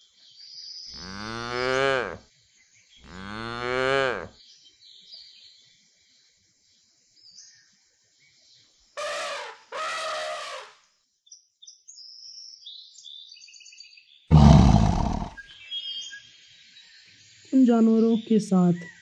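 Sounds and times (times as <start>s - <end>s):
faint birdsong: 0.0s - 19.0s
cartoon animal calls: 9.0s - 10.7s, 14.3s - 15.4s
deep roar: 14.3s - 15.4s.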